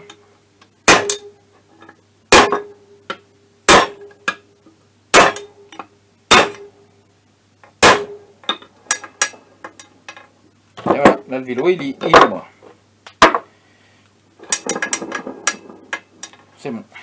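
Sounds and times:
hammer clanging on metal bar: 0.9s - 1.3s.

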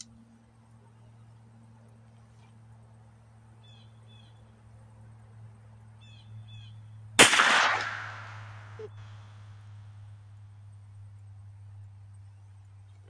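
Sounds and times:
bird calls: 3.6s - 4.5s, 6.0s - 6.9s
gunshot: 7.2s - 8.8s.

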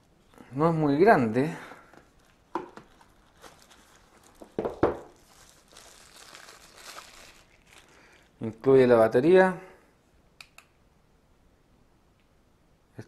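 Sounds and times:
plastic sleeve crinkling: 1.8s - 8.7s.

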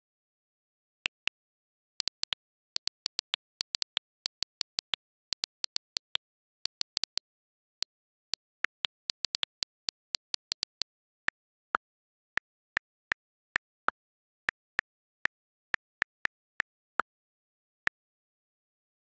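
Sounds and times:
keyboard typing clicks: 2.0s - 11.0s.

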